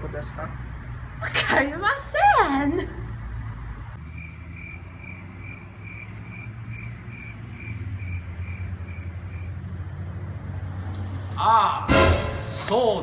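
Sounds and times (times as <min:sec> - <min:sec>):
cricket chirping: 0:04.0 - 0:09.8.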